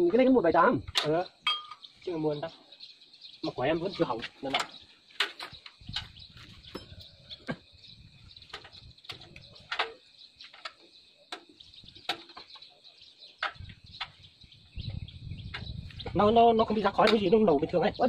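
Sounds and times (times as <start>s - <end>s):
tools and parts clicking and knocking: 0.9s - 1.8s, 4.2s - 7.2s, 8.4s - 12.7s, 13.3s - 14.2s.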